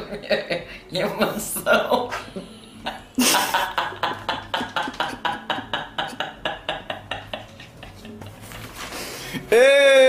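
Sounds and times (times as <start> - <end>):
woman laughing hard: 1.7 - 8.4.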